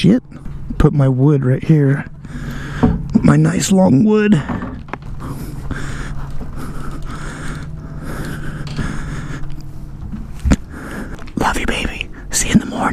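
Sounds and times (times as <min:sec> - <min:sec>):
steady low hum: 0:00.0 - 0:12.9
person breathing hard: 0:02.2 - 0:03.1, 0:04.5 - 0:11.4.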